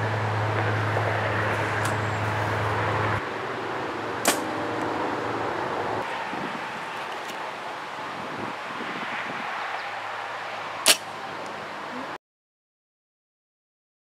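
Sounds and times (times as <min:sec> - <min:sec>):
outdoor background noise: 0:00.0 - 0:12.2
bow string snap: 0:04.2 - 0:04.5, 0:10.8 - 0:11.1.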